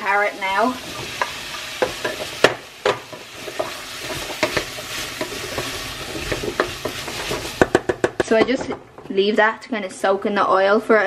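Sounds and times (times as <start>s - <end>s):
vegetables sizzling in oil: 0.0s - 8.5s
wooden spoon scraping a pot: 0.8s - 8.1s.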